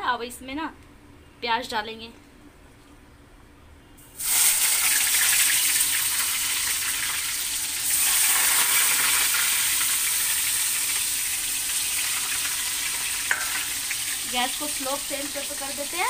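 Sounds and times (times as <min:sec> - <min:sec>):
onions sizzling in hot oil: 0:04.2 - 0:16.0.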